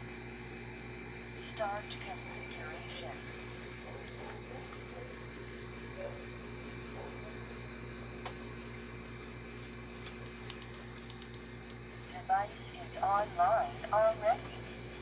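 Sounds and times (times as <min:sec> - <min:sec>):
rapid high-pitched beeps: 0:00.0 - 0:11.8.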